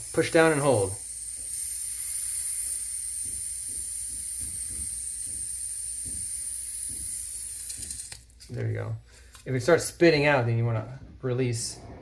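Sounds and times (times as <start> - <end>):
gas hissing: 0.0 - 9.5.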